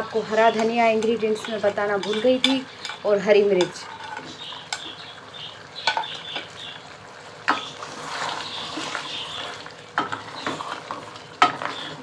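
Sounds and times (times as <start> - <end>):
spoon stirring thick gravy: 0.1 - 5.1, 7.4 - 12.0.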